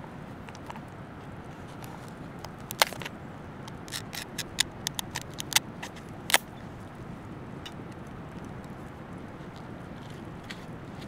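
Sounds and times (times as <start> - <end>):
crab shell cracking: 1.8 - 6.6.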